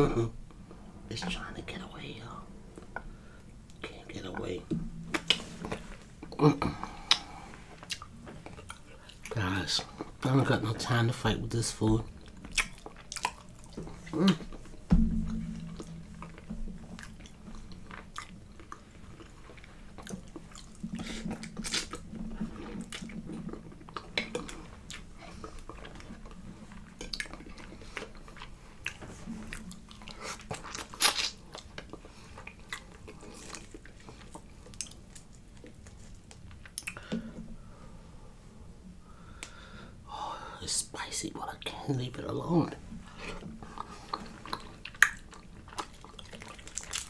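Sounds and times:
low closed-mouth hum: 0:00.0 - 0:47.0
person chewing: 0:05.0 - 0:10.1, 0:12.1 - 0:37.4, 0:43.0 - 0:47.0
wet mouth clicks and smacks: 0:12.4 - 0:14.7, 0:28.4 - 0:37.1, 0:44.1 - 0:47.0
knocks: 0:14.9 - 0:17.7.

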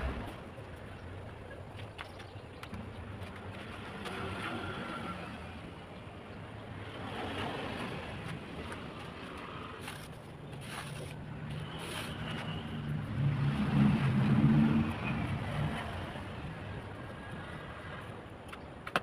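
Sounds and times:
vehicle engine passing: 0:00.0 - 0:00.6, 0:10.6 - 0:17.3.

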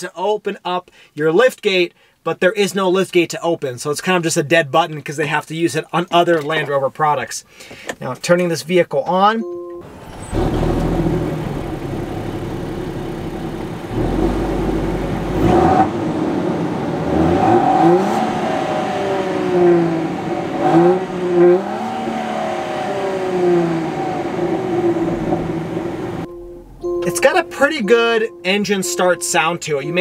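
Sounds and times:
engine revving in throttle blips: 0:09.7 - 0:30.0.

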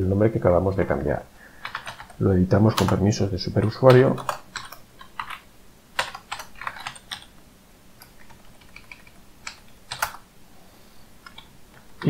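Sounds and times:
keyboard keys clicking: 0:01.6 - 0:07.4, 0:08.0 - 0:10.3, 0:11.2 - 0:12.0.

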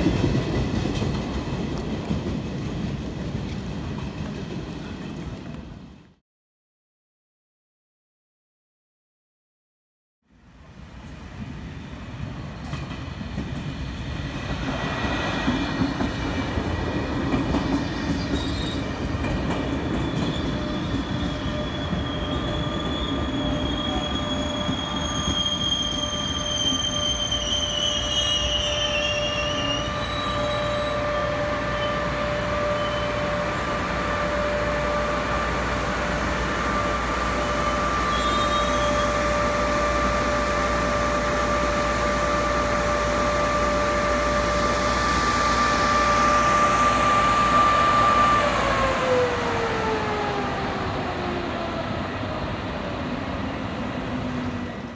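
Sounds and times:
train rumbling: 0:00.0 - 0:06.2, 0:10.6 - 0:54.9
high brake squeal: 0:17.8 - 0:18.9, 0:19.6 - 0:33.6, 0:36.8 - 0:39.4.

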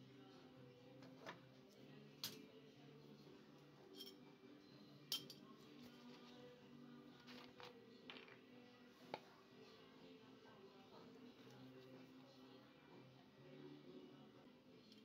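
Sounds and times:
faint background music: 0:00.0 - 0:15.0
objects clinking on a table: 0:03.9 - 0:04.3, 0:05.1 - 0:05.5.

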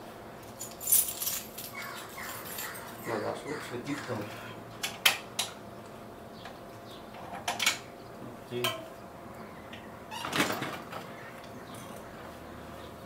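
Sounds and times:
sharp metallic clinks: 0:00.6 - 0:03.2.

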